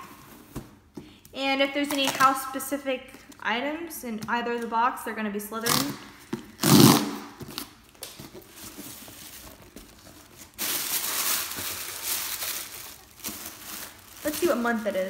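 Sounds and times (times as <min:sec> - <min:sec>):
wrapping crinkling and tearing: 0:06.5 - 0:15.0.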